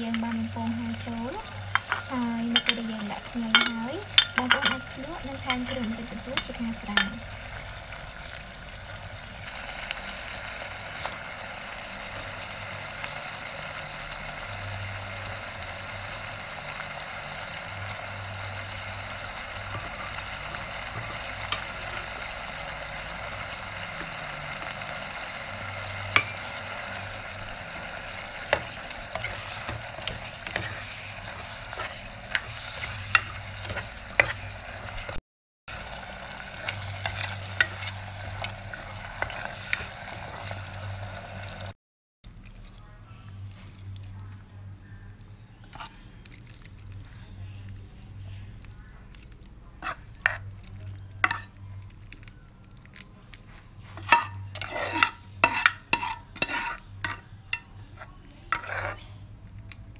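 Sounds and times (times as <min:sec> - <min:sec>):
sauce sizzling and bubbling: 0:00.0 - 0:42.8
wooden spoon scraping pot: 0:00.1 - 0:07.3, 0:19.3 - 0:35.2, 0:36.6 - 0:40.6, 0:45.6 - 0:46.0, 0:49.8 - 0:50.5, 0:53.9 - 0:59.2.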